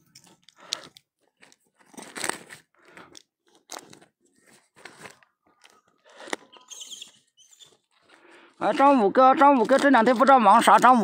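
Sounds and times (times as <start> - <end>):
close crunching and crackling: 0.0 - 11.0.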